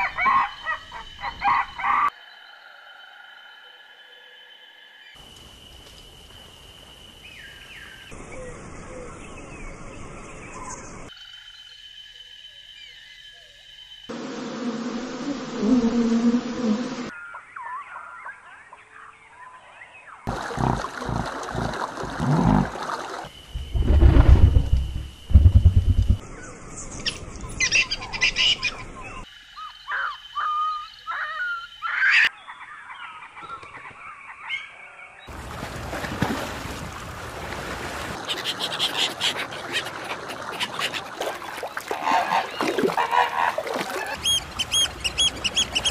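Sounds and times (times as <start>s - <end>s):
honeybees buzzing: 14.1s - 17.1s
birdlike chirps and whistles: 44.1s - 45.9s.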